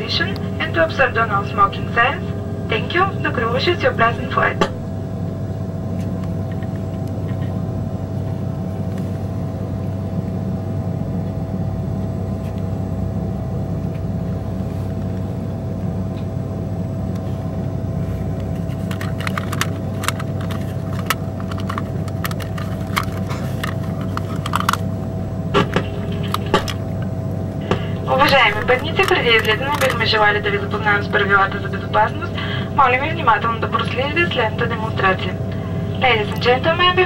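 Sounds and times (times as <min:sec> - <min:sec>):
airliner cabin drone: 0:00.0 - 0:37.0
steady whine: 0:00.0 - 0:37.0
sharp clicks and rattles: 0:18.6 - 0:24.9, 0:25.6 - 0:30.2.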